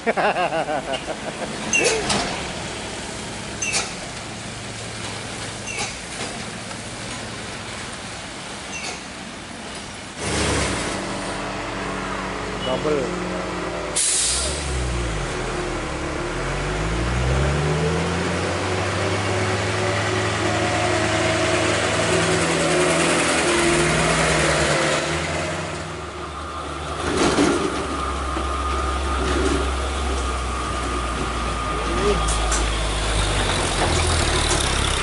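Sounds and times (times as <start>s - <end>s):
diesel truck engines labouring: 0.0s - 35.0s
loud burst of noise: 10.2s - 11.4s.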